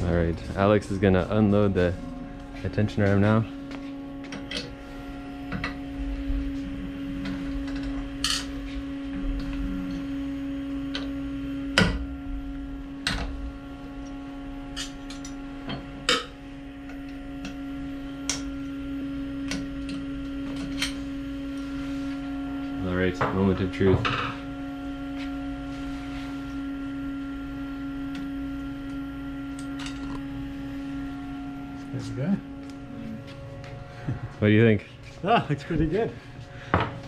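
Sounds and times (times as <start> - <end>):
machine idling hum: 0.0 - 37.0.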